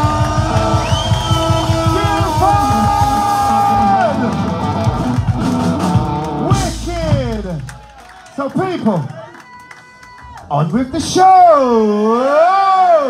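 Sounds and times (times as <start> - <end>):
voice yelling: 0.0 - 4.6
live band playing loud music: 0.0 - 8.1
steady drumbeat: 0.0 - 8.1.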